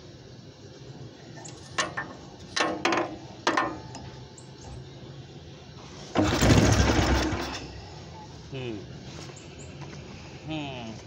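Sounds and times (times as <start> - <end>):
engine cranking whirr: 6.1 - 8.0.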